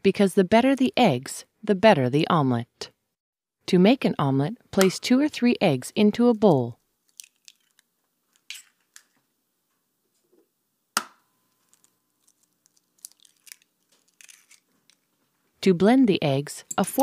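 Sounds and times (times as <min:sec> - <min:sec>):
eggshell cracking: 0:07.0 - 0:09.1, 0:11.6 - 0:15.1.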